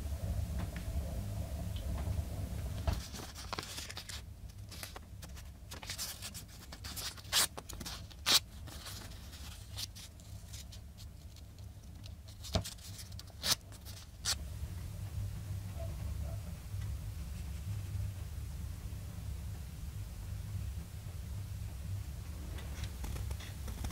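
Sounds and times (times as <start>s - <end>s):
low steady hum: 0.0s - 23.9s
paper rustling: 2.9s - 14.4s.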